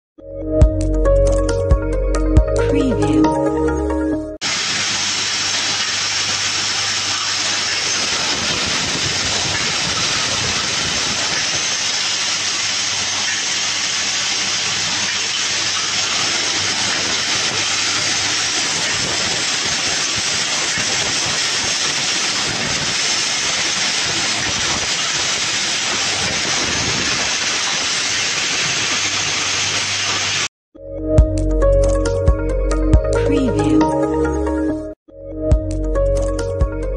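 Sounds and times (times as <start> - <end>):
torch flames hissing: 18.2 - 30.5.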